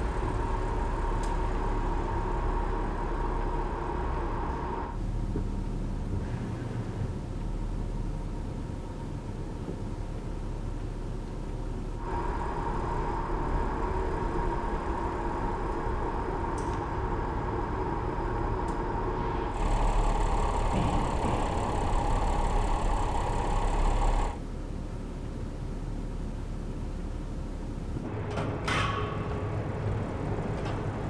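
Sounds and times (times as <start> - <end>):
constant whine: 0.0 - 31.0
car engine running: 11.4 - 28.1.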